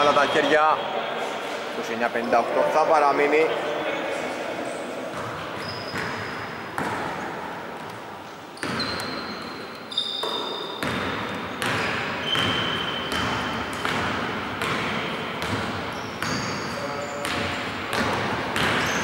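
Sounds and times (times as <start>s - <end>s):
basketball bouncing on wooden floor: 5.1s - 7.2s, 8.6s - 9.2s, 10.1s - 19.0s
sneaker squeaks: 5.1s - 7.3s, 8.5s - 19.0s.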